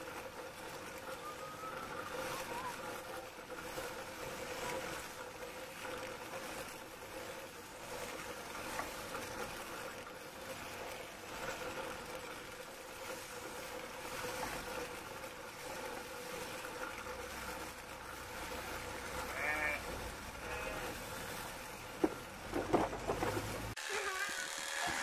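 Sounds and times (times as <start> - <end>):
shearing machine humming: 18.7 - 25.0
sheep bleating: 19.3 - 19.8, 20.4 - 21.0.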